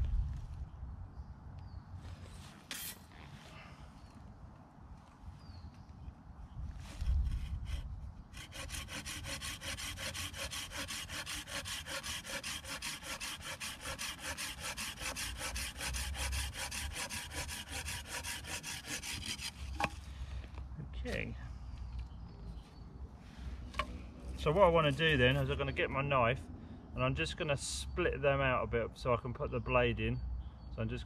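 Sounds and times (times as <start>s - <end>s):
hand saw cutting wood: 7.0s - 19.9s.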